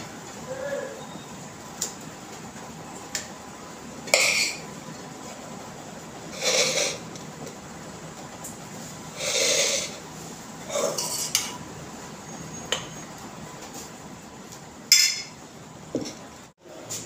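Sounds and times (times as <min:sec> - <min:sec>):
spoon clinking on steel plate: 0:14.9 - 0:15.4.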